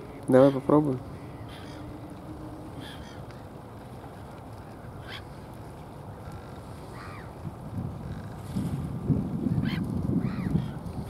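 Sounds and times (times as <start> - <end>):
distant bird calls: 0.0 - 3.5
wind rumble on microphone: 0.0 - 11.0.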